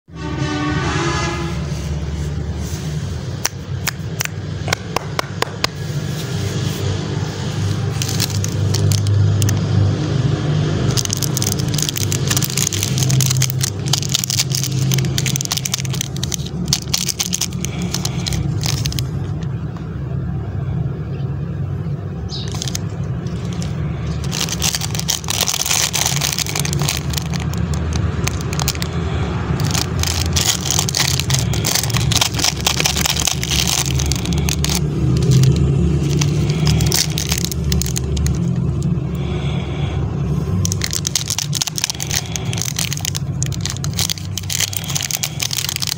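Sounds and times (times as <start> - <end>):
plastic wrappers crinkling: 7.4 - 9.8, 10.8 - 19.4, 22.3 - 38.9, 40.5 - 45.9.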